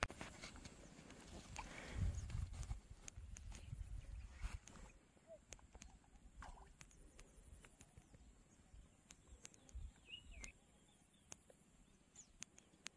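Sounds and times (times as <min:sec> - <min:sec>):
faint bird chirps: 0:03.2 - 0:12.9
small ticks: 0:05.5 - 0:08.2, 0:09.0 - 0:10.6, 0:11.2 - 0:11.6, 0:12.2 - 0:12.9.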